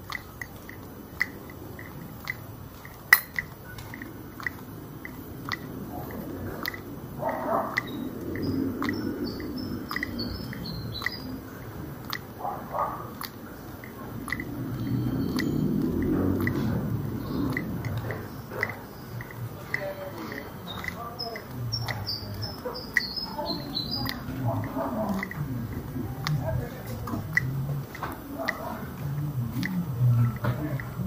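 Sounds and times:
footsteps on pavement: 0.0s - 31.0s
faint high chirps: 13.9s - 26.5s
low rumble: 14.0s - 20.0s, 23.6s - 31.0s.

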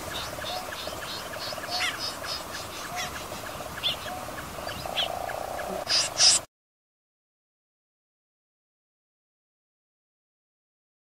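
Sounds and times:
recorded bird chirps: 0.0s - 6.5s.

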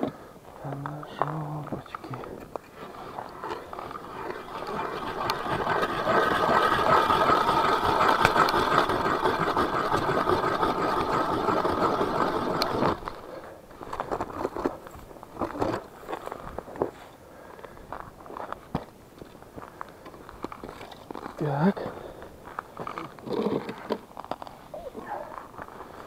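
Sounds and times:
ice auger grinding through ice: 2.7s - 14.8s, 22.8s - 24.0s.

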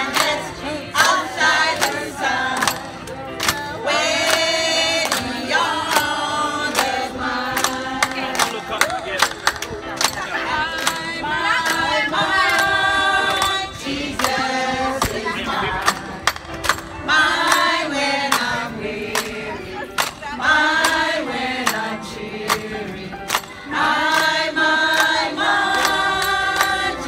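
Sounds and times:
group of voices singing: 0.0s - 27.0s
hand clapping: 1.8s - 3.6s, 4.2s - 11.8s, 15.8s - 16.9s, 20.0s - 20.2s, 23.2s - 26.9s.

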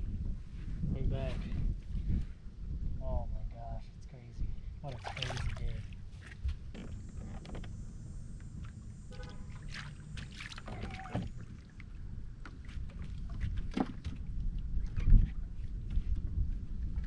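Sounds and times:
low steady rumble: 0.0s - 17.0s
waves slapping against boat hull: 4.9s - 7.5s, 8.5s - 17.0s.

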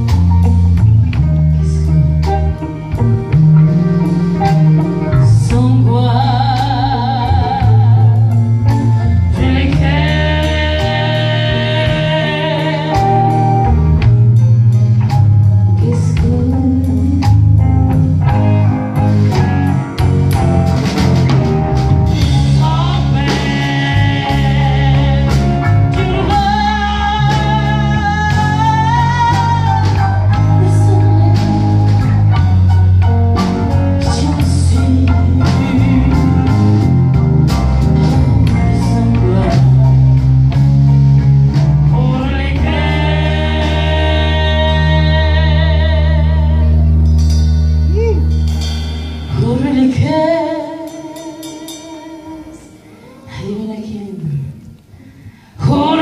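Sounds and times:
blues band playing: 0.0s - 56.0s
woman singing: 5.1s - 13.7s, 15.8s - 18.5s, 22.2s - 32.4s, 34.0s - 36.6s, 38.4s - 40.2s, 41.9s - 46.9s, 49.3s - 54.6s, 55.6s - 56.0s.

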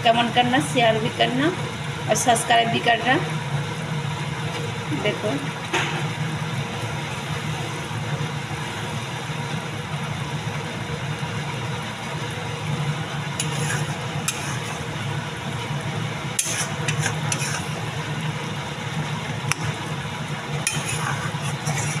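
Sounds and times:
gravy simmering and sizzling: 0.0s - 22.0s
metal spatula scraping pan: 13.4s - 14.9s, 16.4s - 18.0s, 20.6s - 22.0s.

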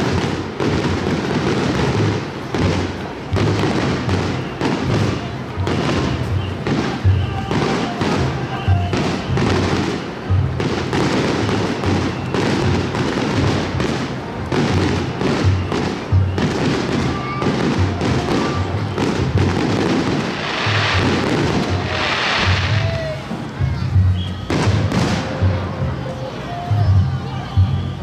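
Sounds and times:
fireworks bursting and crackling: 0.0s - 26.4s.

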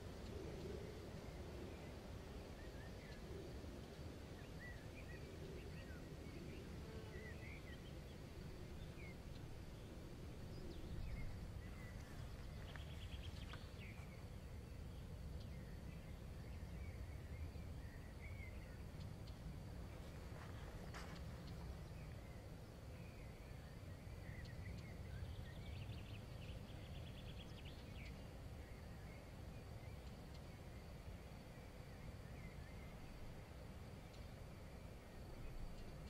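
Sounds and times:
low steady rumble: 0.0s - 36.0s
birds chirping: 4.4s - 29.2s.

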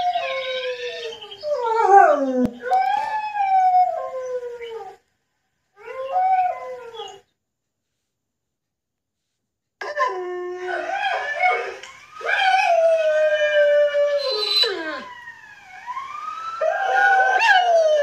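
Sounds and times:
dog howling: 0.0s - 5.0s, 9.8s - 15.1s, 16.6s - 18.0s.

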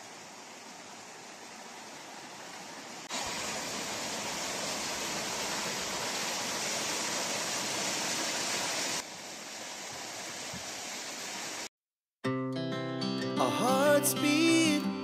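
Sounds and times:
waterfall rushing: 0.0s - 11.7s.

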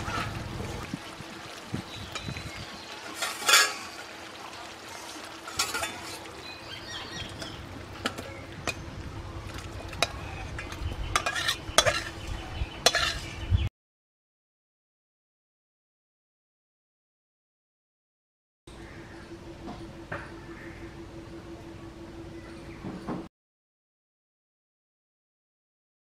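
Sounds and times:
metal spatula scraping metal pot: 3.0s - 4.0s, 5.4s - 6.3s, 10.0s - 13.4s
faint hum: 3.9s - 12.8s, 18.7s - 23.3s.

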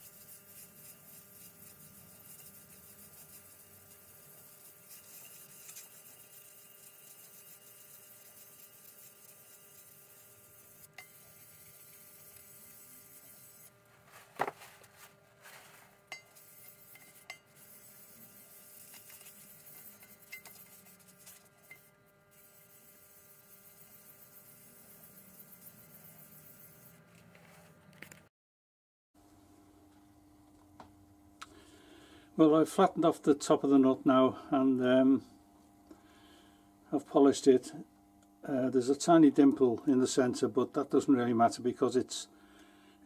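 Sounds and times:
metal nut scrubbing on abrasive paper: 0.0s - 27.8s.

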